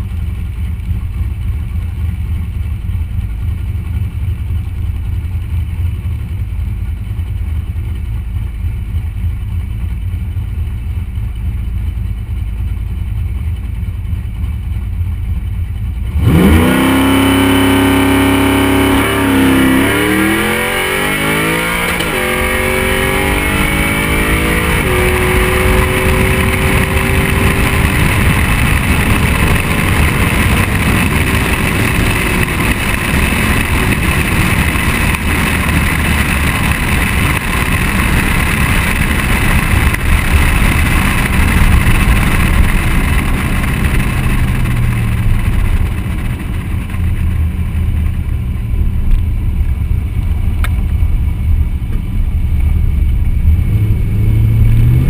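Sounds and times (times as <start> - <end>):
drag car engine revving: 16.0 - 55.0
wind noise on microphone: 20.0 - 46.9.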